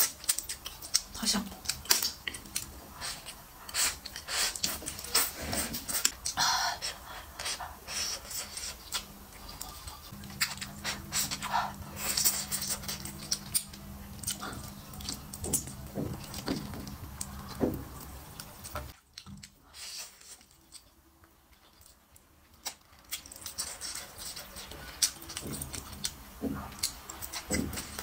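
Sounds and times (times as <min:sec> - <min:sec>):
wet chewing: 0:00.0 - 0:28.0
breaths through the nose: 0:02.9 - 0:08.8.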